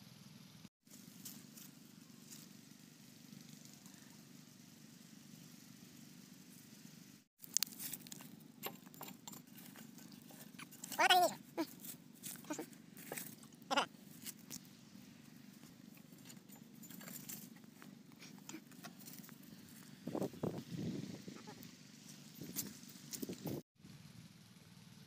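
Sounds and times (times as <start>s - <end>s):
goat bleating: 12.4s - 13.9s.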